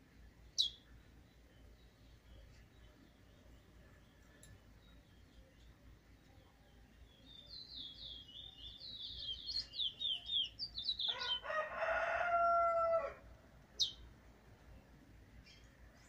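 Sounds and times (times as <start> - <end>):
rooster crowing: 11.0 - 13.2.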